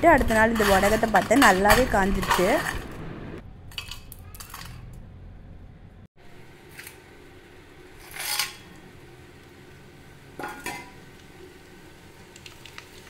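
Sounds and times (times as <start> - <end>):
metal kitchenware clinking: 0.0 - 2.8, 3.7 - 5.0, 10.4 - 11.0
hot oil hissing: 6.4 - 13.0.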